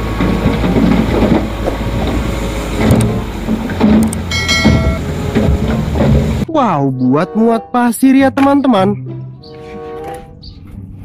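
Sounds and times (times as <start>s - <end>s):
dump truck engine running: 0.0s - 6.5s
short ringing tone: 4.3s - 5.1s.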